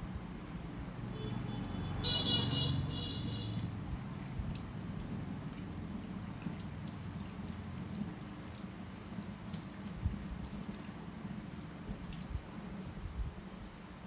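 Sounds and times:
shower water splashing: 2.8s - 13.0s.

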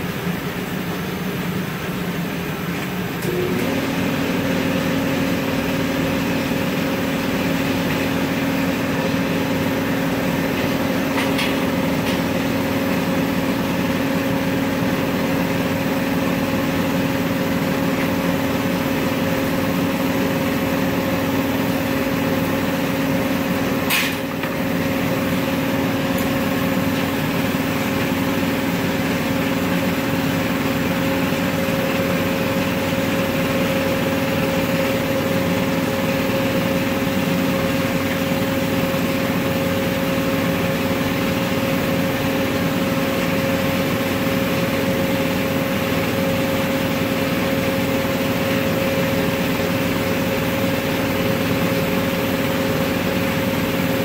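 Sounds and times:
furnace burners rushing and humming: 0.0s - 54.0s.

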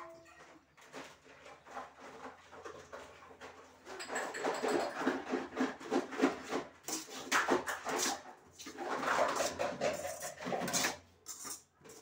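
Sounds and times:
metal spatula scraping a pan: 4.0s - 12.0s.

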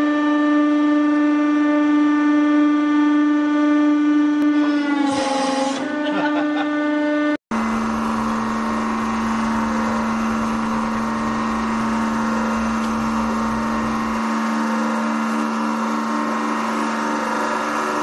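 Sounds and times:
hydraulic press motor humming: 4.4s - 18.0s
low rumble: 7.6s - 14.6s.

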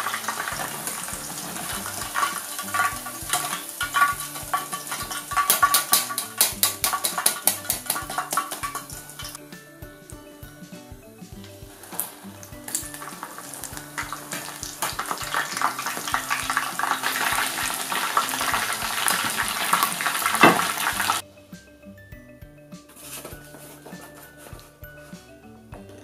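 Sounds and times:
pork sizzling in hot oil: 0.0s - 9.4s, 11.7s - 21.2s
soft background music: 0.0s - 26.0s.

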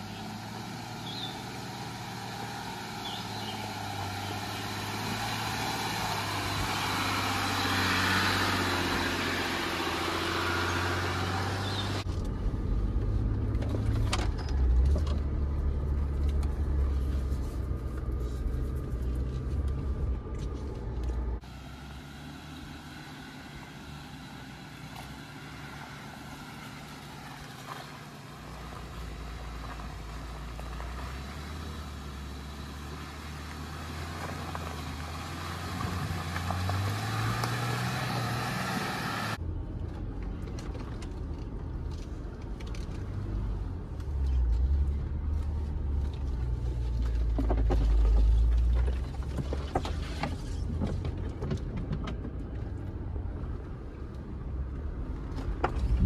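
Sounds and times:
pickup engine and road noise: 0.0s - 56.0s
deep rumble with knocks and rattles: 12.0s - 21.4s, 44.0s - 53.5s, 55.1s - 56.0s.

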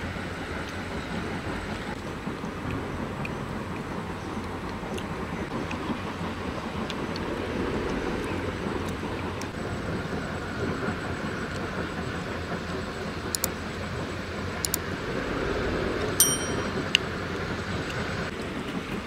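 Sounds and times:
steady rumbling noise: 0.0s - 19.0s
short bell ding: 16.2s - 16.9s.

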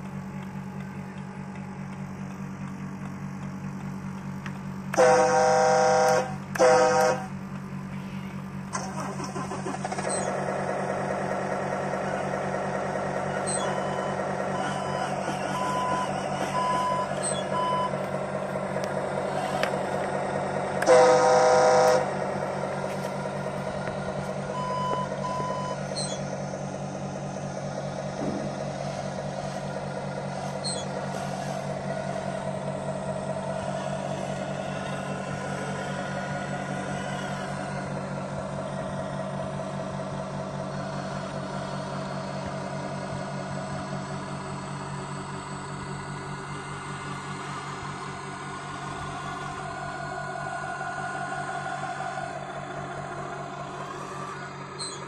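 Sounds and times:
simulated truck engine: 0.0s - 55.0s
loud horn blast: 4.9s - 7.4s, 20.8s - 22.3s
short reversing beeps: 13.4s - 18.0s, 24.5s - 26.2s.

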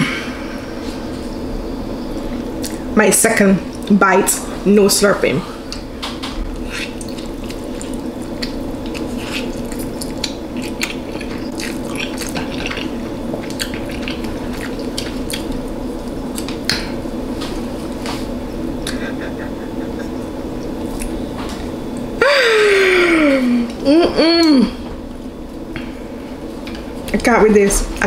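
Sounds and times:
steady low hum: 0.0s - 28.0s
wet chewing with mouth smacks: 6.6s - 16.9s, 20.1s - 22.1s.

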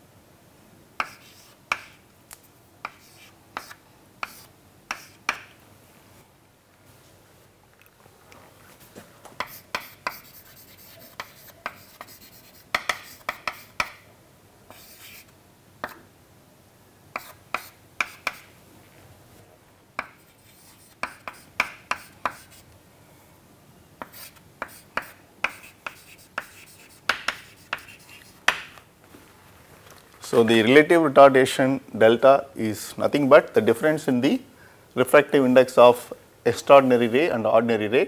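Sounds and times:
chalk tapping and scratching: 1.0s - 2.0s, 2.8s - 5.6s, 8.8s - 14.0s, 14.7s - 16.0s, 17.1s - 18.5s, 20.0s - 22.7s, 24.0s - 28.7s.

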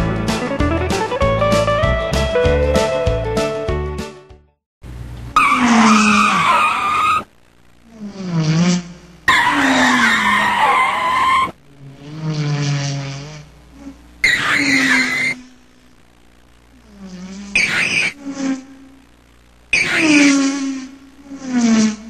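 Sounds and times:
car tyres screeching: 5.3s - 7.3s, 8.5s - 13.5s, 14.2s - 15.4s, 17.6s - 18.2s, 19.7s - 20.8s.

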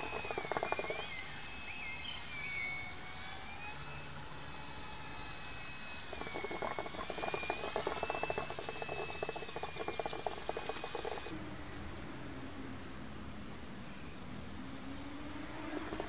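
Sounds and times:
dense crackle: 0.0s - 1.1s, 6.1s - 11.3s
model plane motor whining: 0.0s - 11.4s, 14.6s - 16.0s.

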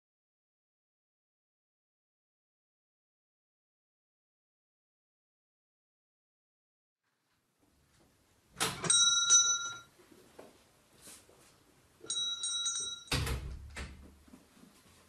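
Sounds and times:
shop door bell ringing: 8.7s - 9.9s, 12.0s - 13.3s
door shutting with thump: 13.1s - 14.0s.

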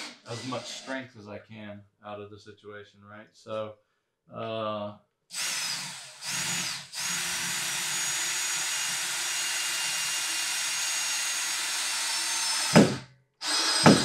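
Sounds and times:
cordless drill driving screw: 0.0s - 1.0s, 5.3s - 14.0s.

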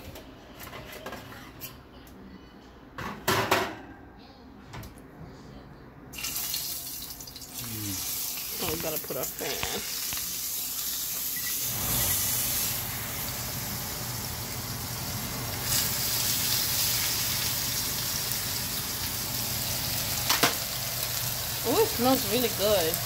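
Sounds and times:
steaks sizzling in oil: 6.2s - 23.0s.

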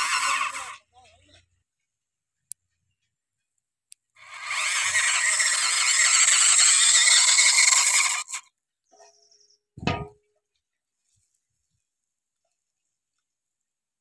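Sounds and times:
toy motor whirring: 0.0s - 0.9s, 4.2s - 8.5s.

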